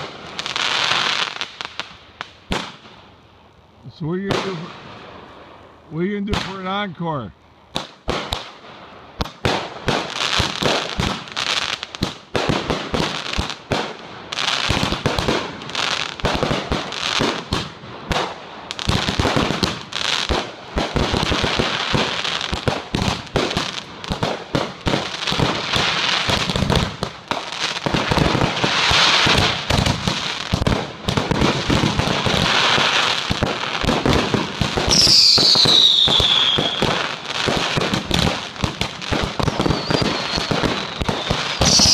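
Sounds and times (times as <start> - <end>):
fireworks bangs: 0.0 - 3.0, 4.1 - 5.5, 6.1 - 6.9, 7.7 - 41.9
crackling bursts: 0.0 - 41.9
falling firework whistle: 34.8 - 37.0, 39.4 - 41.9.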